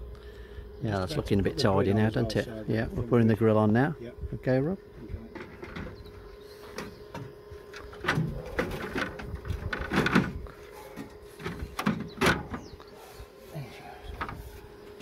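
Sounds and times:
van grille knocking and scraping: 5.3 - 12.7, 14.0 - 15.0.

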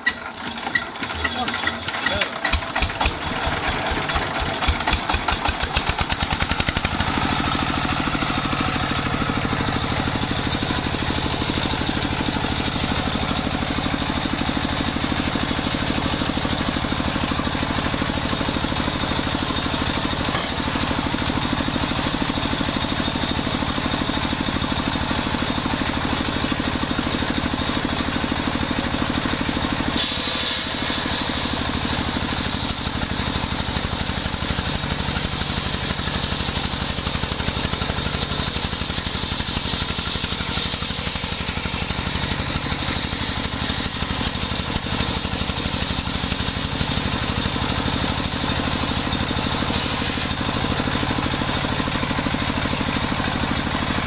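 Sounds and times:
diesel engine running: 0.0 - 54.0
circular saw ripping wood: 30.0 - 47.2.

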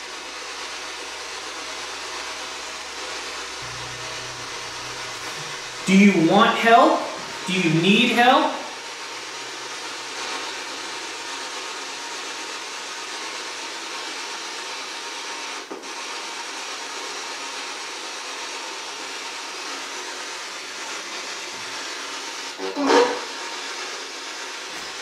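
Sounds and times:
scanning radio static hiss: 0.0 - 13.4.

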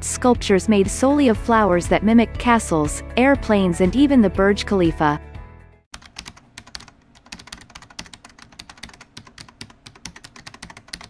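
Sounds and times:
rapid keyboard typing: 5.9 - 11.0.

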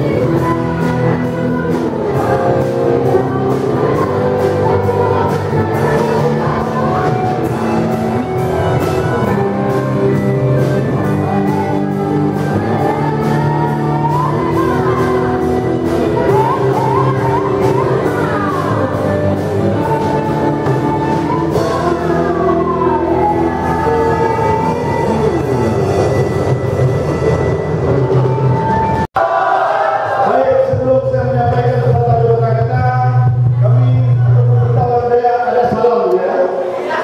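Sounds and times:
drum kit steady beat: 0.0 - 29.1
electric bass: 0.0 - 29.1, 30.7 - 35.8
electric guitar: 0.0 - 29.1.

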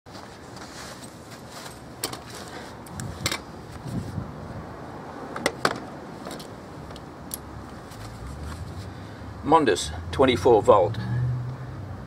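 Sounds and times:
steady background noise: 0.1 - 11.0
handling clicks and knocks: 2.0 - 3.5, 5.3 - 8.1.

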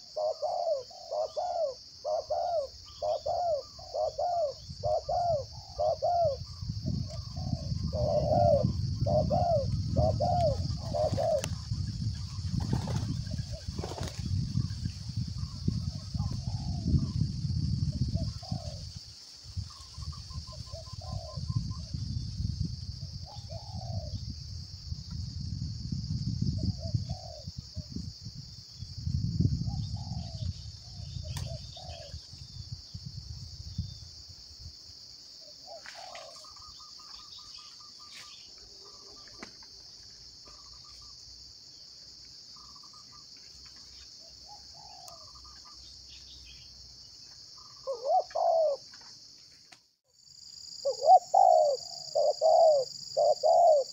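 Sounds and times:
doves cooing: 0.0 - 14.2, 15.4 - 17.2, 18.2 - 18.9, 19.8 - 21.6, 23.2 - 24.2, 26.7 - 27.6, 29.7 - 32.3, 35.4 - 41.1, 44.2 - 45.8, 47.6 - 49.1, 50.8 - 53.9.

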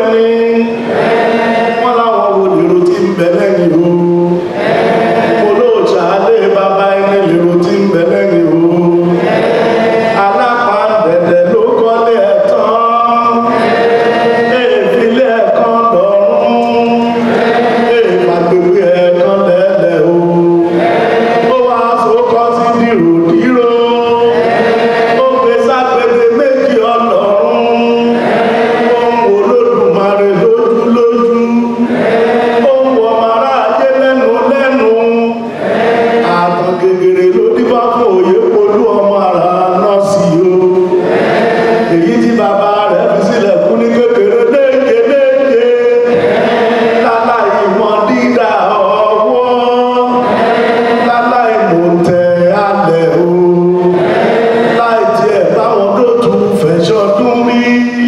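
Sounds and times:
group of voices chanting: 0.8 - 2.8, 4.3 - 6.3, 8.9 - 11.1, 13.3 - 15.2, 16.4 - 19.2, 20.1 - 23.4, 24.0 - 30.3, 31.8 - 34.4, 35.4 - 36.9, 40.7 - 43.2, 46.0 - 52.1, 52.8 - 55.8.

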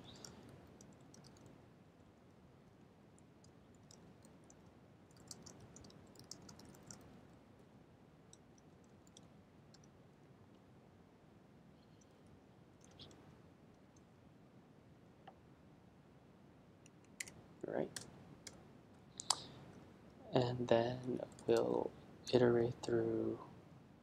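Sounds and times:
keyboard typing: 0.0 - 1.5, 3.7 - 7.1.

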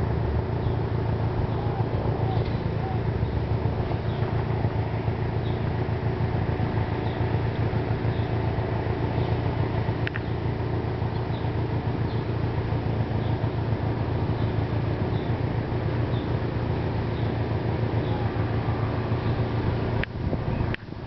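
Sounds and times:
steady low rumble: 0.0 - 21.0
click: 10.0 - 10.3.

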